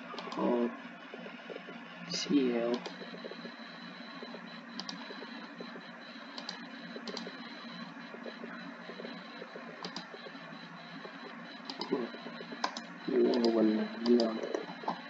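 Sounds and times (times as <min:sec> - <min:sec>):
steady background hum: 0:00.0 - 0:15.0
computer mouse clicks: 0:02.7 - 0:03.4, 0:04.8 - 0:05.6, 0:06.3 - 0:07.4, 0:09.8 - 0:10.2, 0:11.6 - 0:15.0.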